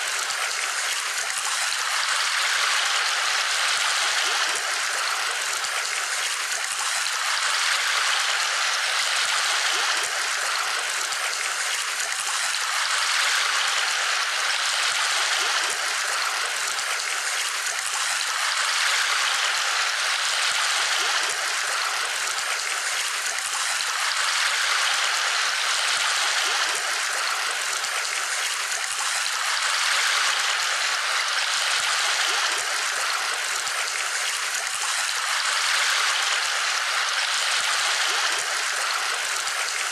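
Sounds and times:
running water rushing: 0:00.0 - 0:39.9.

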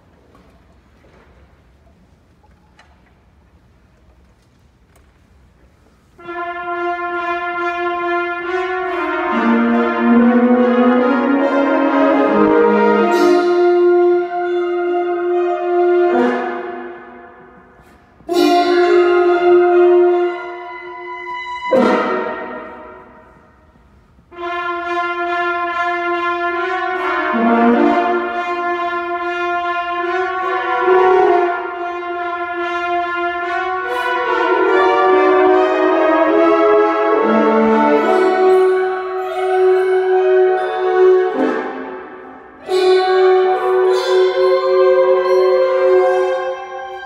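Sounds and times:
wind band playing: 0:06.1 - 0:47.0
french horns holding notes: 0:06.2 - 0:47.0.

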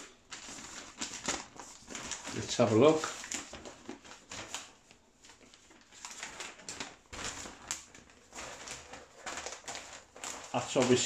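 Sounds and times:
paper sheets rustling: 0:00.0 - 0:11.0.

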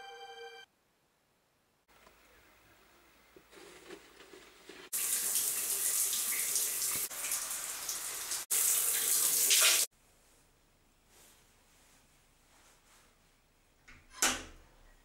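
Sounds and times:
shower spraying water: 0:04.6 - 0:09.9.

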